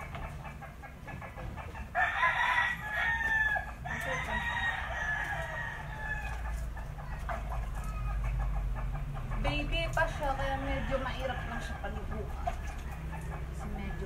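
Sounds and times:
rooster crowing: 0:02.0 - 0:06.6, 0:10.4 - 0:12.0.

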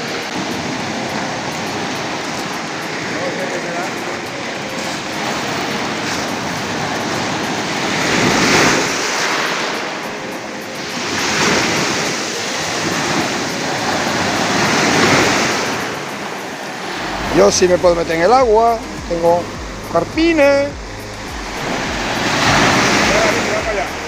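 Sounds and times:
waves breaking on pebble beach: 0:00.0 - 0:17.6, 0:21.4 - 0:23.9.

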